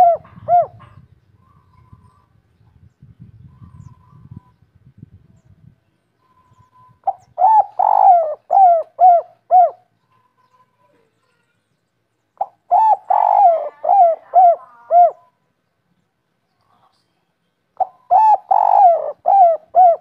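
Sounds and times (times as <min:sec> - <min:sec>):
dove cooing: 0:00.0 - 0:02.3, 0:07.0 - 0:09.9, 0:12.4 - 0:15.4, 0:17.8 - 0:20.0.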